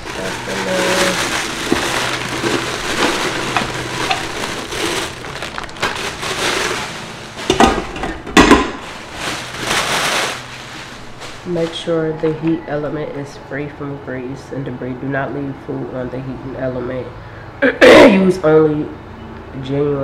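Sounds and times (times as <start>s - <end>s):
plastic bags crinkling: 0.0s - 12.7s.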